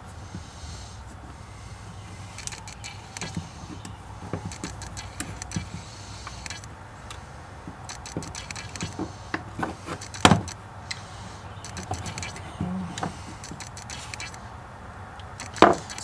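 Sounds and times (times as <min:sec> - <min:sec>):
screwdriver clicking on metal and plastic: 0:02.3 - 0:06.7, 0:07.8 - 0:14.4, 0:15.2 - 0:16.0.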